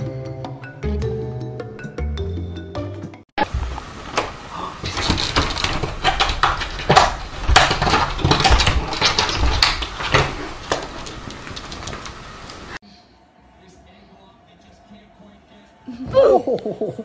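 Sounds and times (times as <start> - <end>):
cat flap clattering and banging: 4.1 - 12.3.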